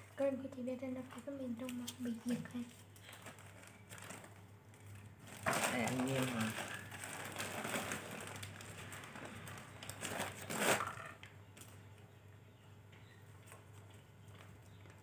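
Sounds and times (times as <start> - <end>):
plastic straws crinkling: 1.6 - 11.7.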